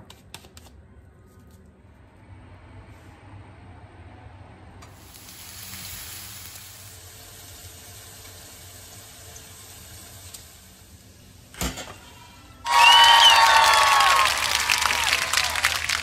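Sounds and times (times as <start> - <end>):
burger patty sizzling in a pan: 4.9 - 12.3.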